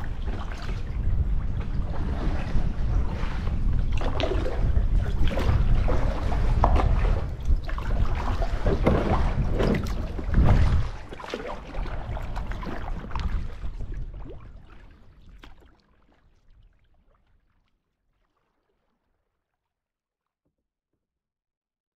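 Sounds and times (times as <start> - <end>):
water drips and slaps: 0.0 - 18.9
water lapping against canoe: 0.0 - 19.4.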